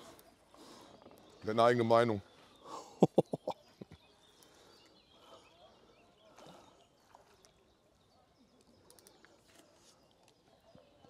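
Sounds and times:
faint ticks: 0:08.6 - 0:10.4.

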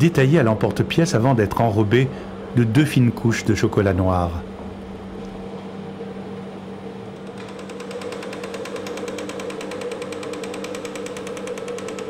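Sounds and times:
machine hum: 0:00.0 - 0:12.0
fast mechanical clatter: 0:07.3 - 0:12.0.

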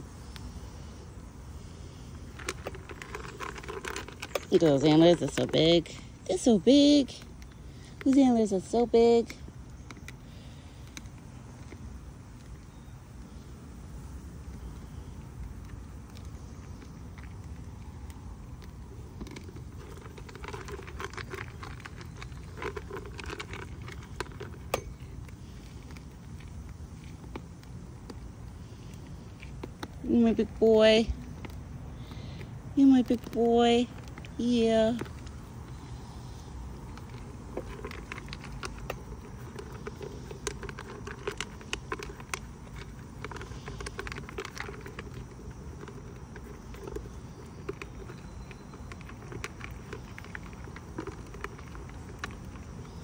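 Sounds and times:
deer crunching food in bucket: 0:02.0 - 0:13.5, 0:14.3 - 0:53.0.

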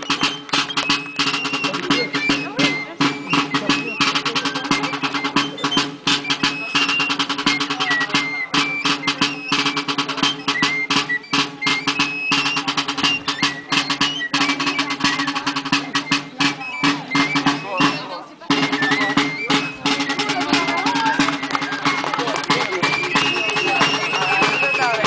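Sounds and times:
fast steady drumming: 0:00.0 - 0:25.0
high flute melody: 0:00.0 - 0:25.0.

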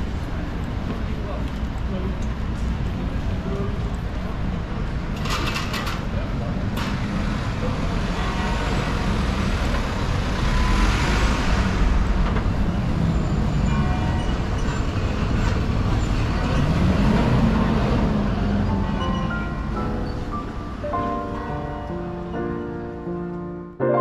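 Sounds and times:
traffic engines rumbling: 0:00.0 - 0:23.5.

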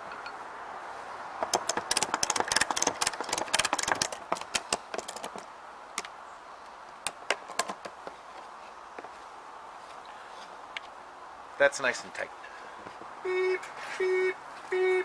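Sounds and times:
ratchet strap clicking: 0:01.4 - 0:05.4.

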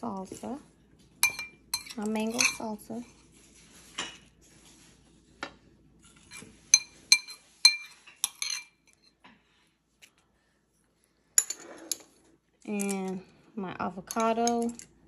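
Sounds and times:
metal spoon clinking against dish: 0:01.2 - 0:02.7, 0:06.7 - 0:09.2.

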